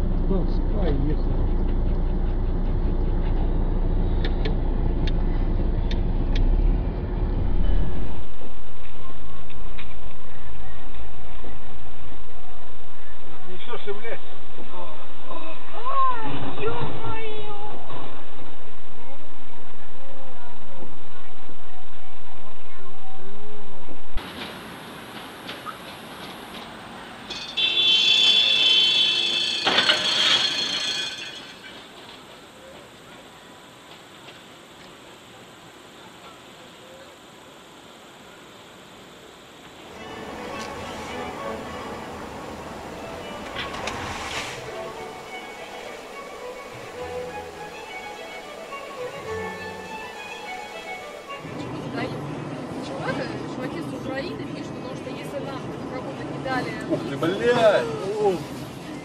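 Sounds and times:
car engine and road rumble: 0:00.0 - 0:30.6
tram wheels squealing: 0:24.3 - 0:33.0.

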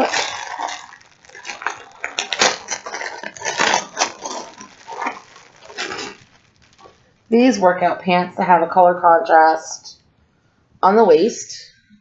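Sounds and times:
plastic packaging crinkling: 0:00.0 - 0:07.6.

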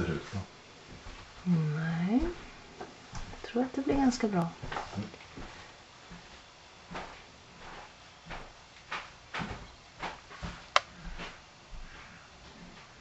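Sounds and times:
soft knocks and rustles: 0:02.2 - 0:11.9.

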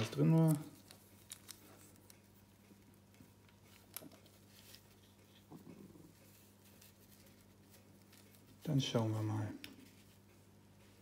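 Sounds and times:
soft plastic rustle: 0:00.0 - 0:11.0.

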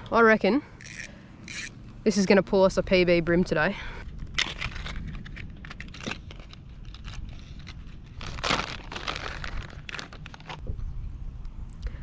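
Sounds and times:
low steady rumble: 0:00.0 - 0:12.0
plastic packet crinkling: 0:04.4 - 0:10.6.

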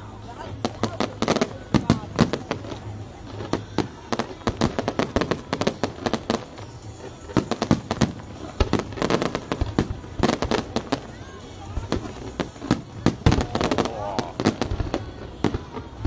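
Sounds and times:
fireworks bangs and crackles: 0:00.0 - 0:16.0.

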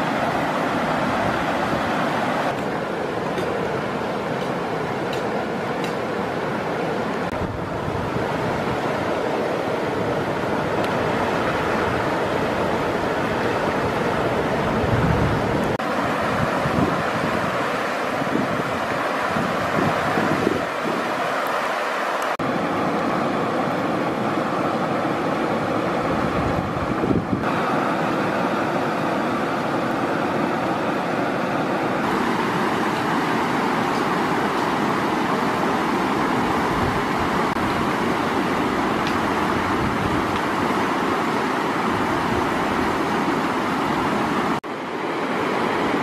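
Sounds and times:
river water rushing: 0:00.0 - 0:46.0
wind buffeting microphone: 0:10.0 - 0:21.2, 0:26.0 - 0:27.5, 0:36.4 - 0:40.8.

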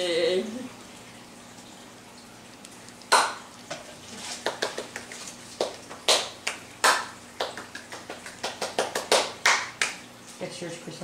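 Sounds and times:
hands clapping: 0:03.1 - 0:03.4, 0:04.4 - 0:10.0.

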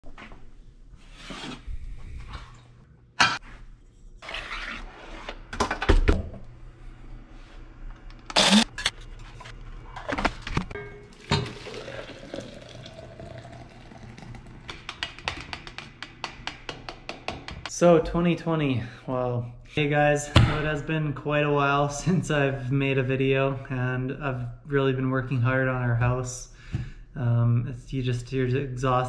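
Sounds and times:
coffee grinder whirring: 0:08.3 - 0:08.7
water pouring into pot: 0:11.1 - 0:14.7.

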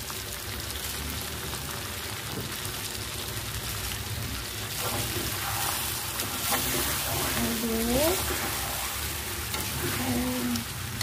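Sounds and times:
food sizzling in a wok: 0:00.0 - 0:11.0
spatula stirring food: 0:04.6 - 0:11.0.

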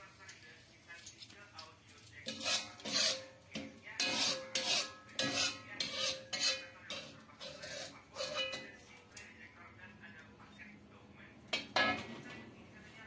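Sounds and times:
utensil scraping metal pan: 0:02.2 - 0:08.8, 0:11.6 - 0:12.2.

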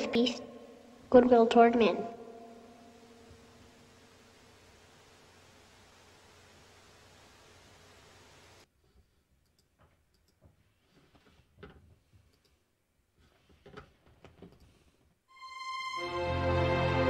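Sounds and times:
faint steady hiss: 0:00.0 - 0:17.0
faint irregular clicks: 0:08.9 - 0:12.6.

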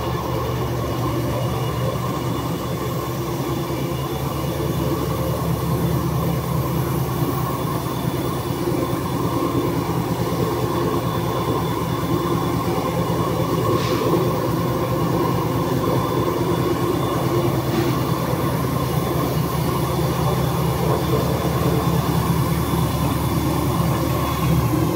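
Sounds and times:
machine mechanical hum: 0:00.0 - 0:24.9.

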